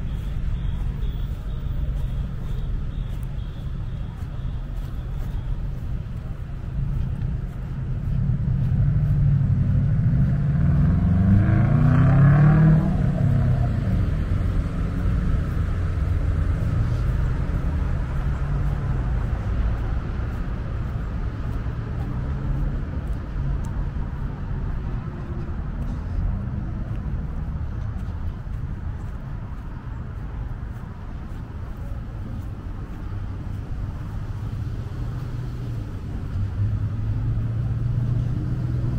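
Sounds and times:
road traffic rumble: 0.0 - 38.9
vehicle passing close: 7.4 - 23.2.

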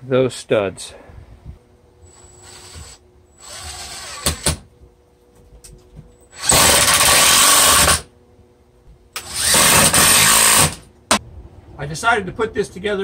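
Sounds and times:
drill driving screws into wood: 2.1 - 4.6, 6.3 - 8.1, 9.2 - 10.9.

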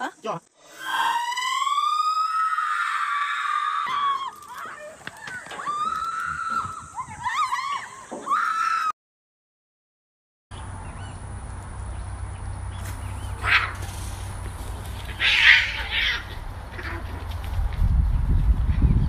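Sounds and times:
person screaming: 0.8 - 4.3.

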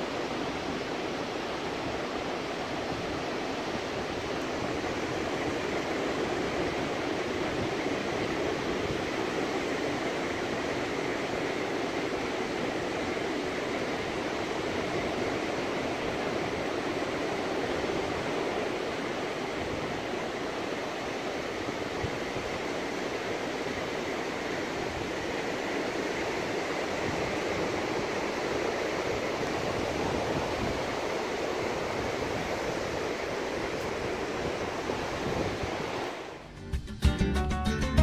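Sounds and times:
ocean surf rushing: 0.0 - 36.6.

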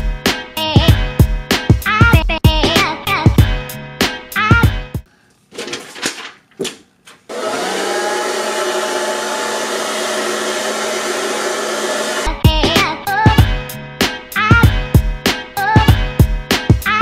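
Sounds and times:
hair dryer whirring: 7.3 - 12.4.

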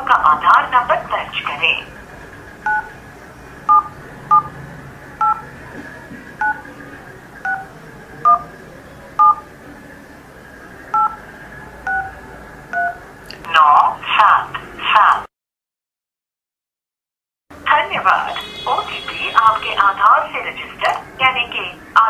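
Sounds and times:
touch-tone keypad beeps: 2.6 - 2.9, 3.7 - 4.5, 5.2 - 5.5, 6.4 - 6.7, 7.4 - 8.5, 9.2 - 9.4, 10.9 - 11.2, 11.9 - 13.0.

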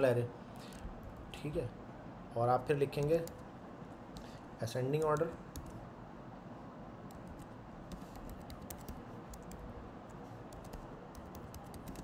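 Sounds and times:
keyboard typing clicks: 5.0 - 5.8, 7.1 - 12.0.

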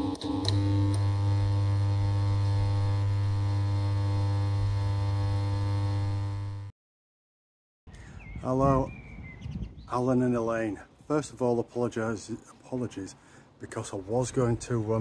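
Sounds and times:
low electronic hum: 0.0 - 6.7.

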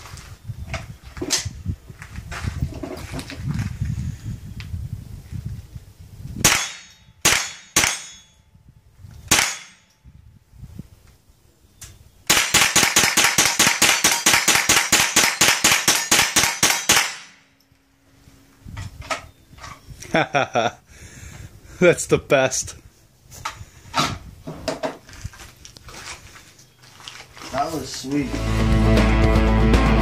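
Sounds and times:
rifle gunshots: 6.4 - 8.2, 9.3 - 9.8, 12.3 - 17.4.

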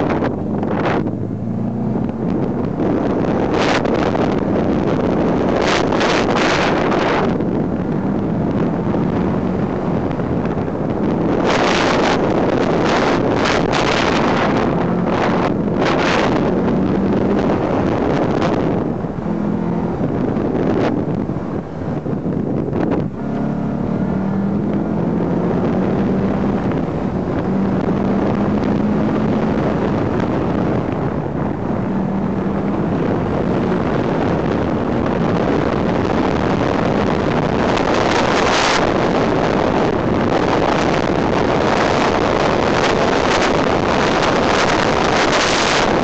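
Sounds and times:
car engine revving: 0.0 - 46.0
wind rush on microphone: 0.0 - 46.0.

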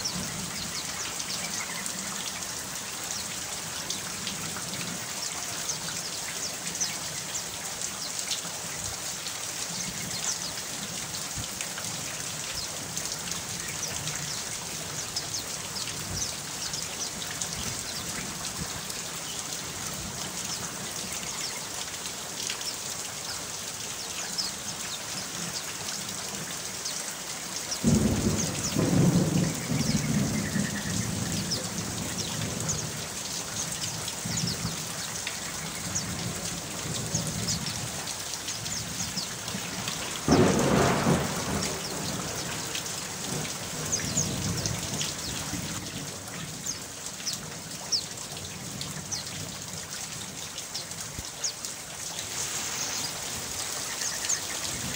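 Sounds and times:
steady rain: 0.0 - 54.9
thunder rumbling: 27.8 - 33.0, 40.2 - 45.8.

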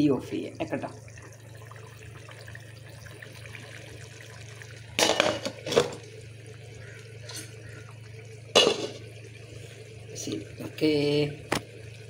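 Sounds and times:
curry bubbling in a pot: 0.0 - 12.0
cookware clattering: 5.0 - 6.0, 8.6 - 9.0.

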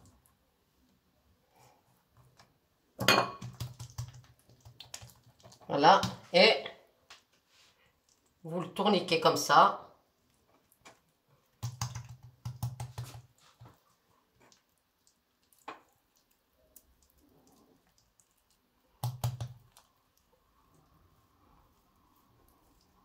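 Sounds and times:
hands pressing dough on countertop: 3.0 - 6.3, 11.6 - 13.8, 18.9 - 19.9.

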